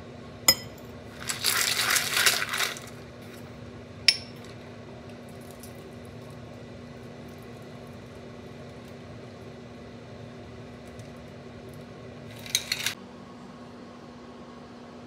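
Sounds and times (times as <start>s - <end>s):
steady low hum: 0.0s - 15.0s
metal shaker clinking on glass: 12.4s - 13.0s.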